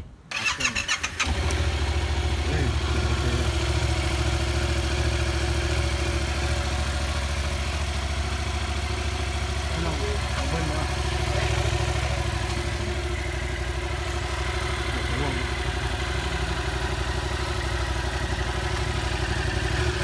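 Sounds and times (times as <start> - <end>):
motorcycle engine idling: 1.0 - 20.0.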